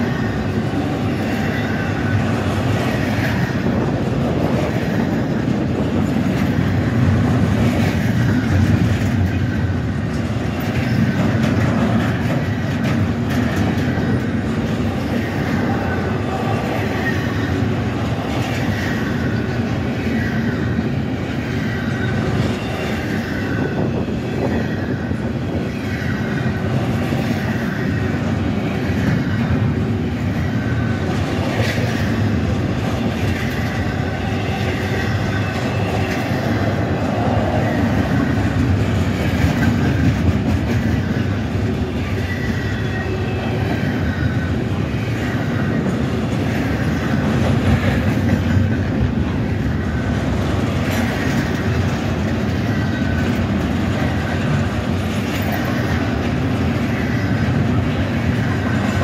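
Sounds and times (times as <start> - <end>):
wheels clacking over rail joints: 0.0 - 20.8
freight train wheels rumbling: 0.0 - 59.0.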